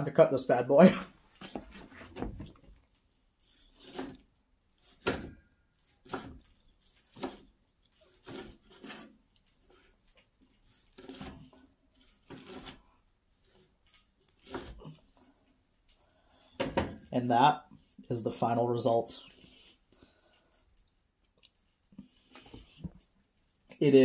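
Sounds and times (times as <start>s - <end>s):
knife slicing onto wooden board: 10.7s - 12.8s, 14.4s - 14.8s.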